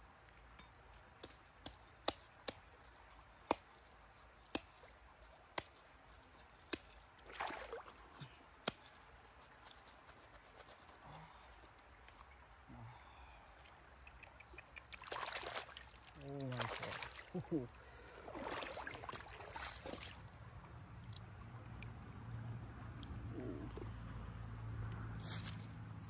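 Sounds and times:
water trickling: 13.8s - 22.4s
machete scraping gravel: 25.2s - 25.7s.

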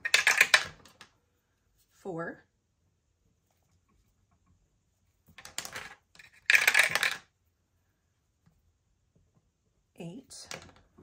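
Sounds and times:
dice clattering in dice tower: 0.0s - 1.0s, 5.3s - 7.4s.

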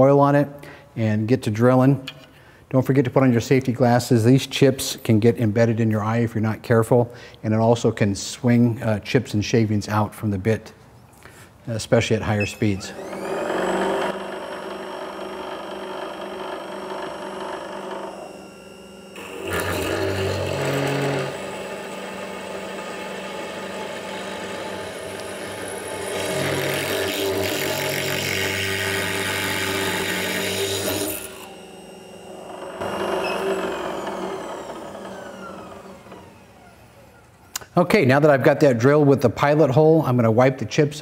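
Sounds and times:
drill bit cutting steel: 12.4s - 36.6s
drill press motor whine: 12.4s - 37.5s.

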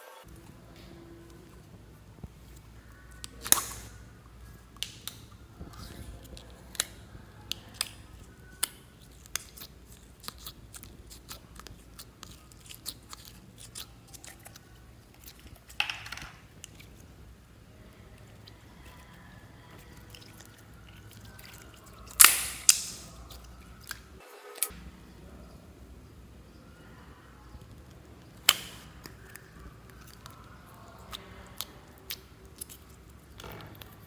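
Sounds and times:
slime sticky clicks and pops: 3.2s - 3.9s, 22.1s - 23.1s
wet slaps of slime: 22.1s - 23.1s.

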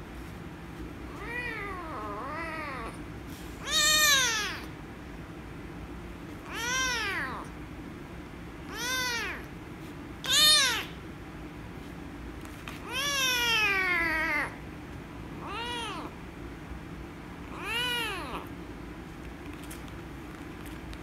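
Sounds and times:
kitten meowing loudly: 3.6s - 4.7s, 6.5s - 7.5s, 8.7s - 9.5s, 10.2s - 11.0s.

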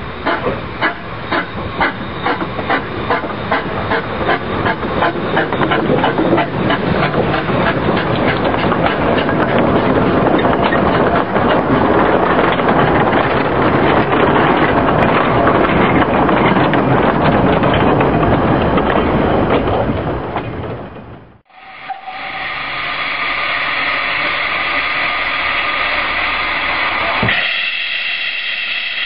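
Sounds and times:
steam locomotive beats: 0.0s - 29.0s
wagons clickety-clack over rail joints: 0.1s - 21.4s.

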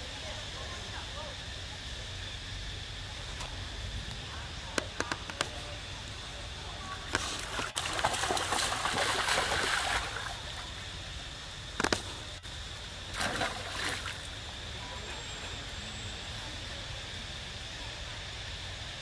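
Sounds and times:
water splashing and trickling: 7.3s - 10.7s, 13.1s - 14.3s.

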